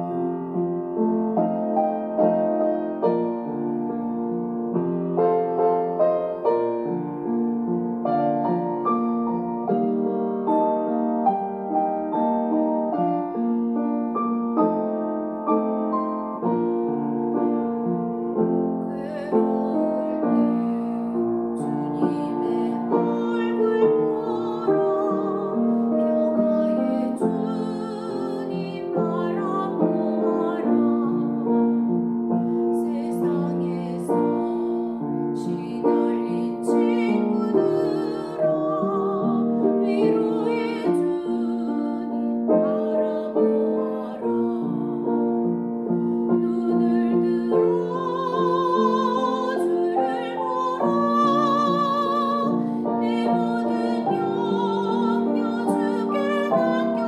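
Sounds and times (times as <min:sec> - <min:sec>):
piano accompaniment: 0:00.0 - 0:57.0
woman singing a hymn: 0:18.8 - 0:57.0.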